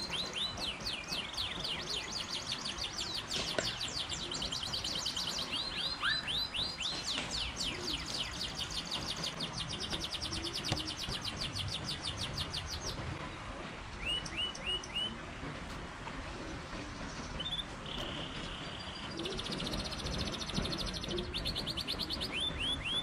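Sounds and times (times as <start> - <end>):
songbirds trilling: 0.0 - 13.2
low background rush: 0.0 - 23.0.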